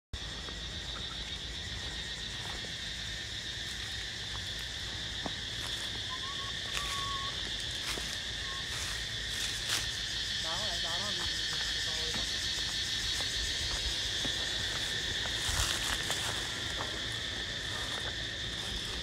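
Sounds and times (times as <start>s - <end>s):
high-pitched insect chorus: 0.1s - 19.0s.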